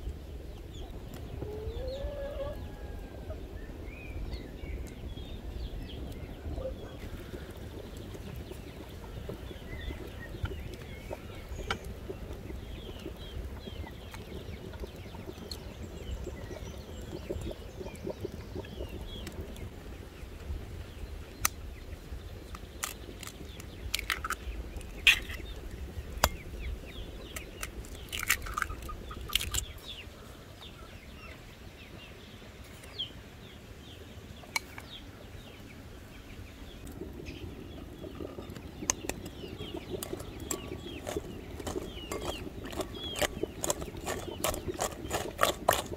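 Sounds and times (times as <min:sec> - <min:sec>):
small birds chirping: 0:00.0 - 0:45.9
hens clucking: 0:01.4 - 0:03.4
eggs cracked on glass bowl: 0:22.8 - 0:24.4, 0:27.4 - 0:29.6.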